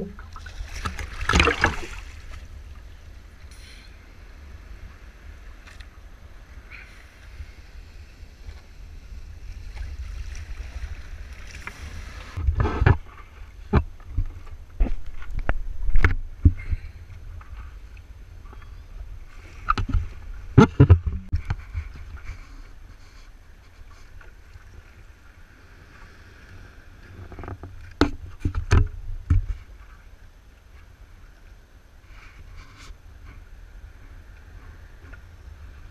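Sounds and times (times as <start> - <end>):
paddle splashing water: 0.0 - 2.9.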